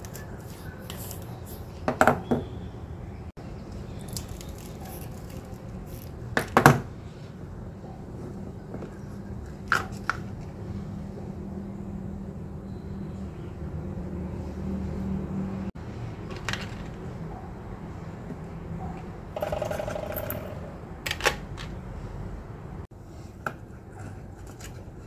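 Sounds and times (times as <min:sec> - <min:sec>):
utensils knocking and clicking: 0:19.4 - 0:21.8.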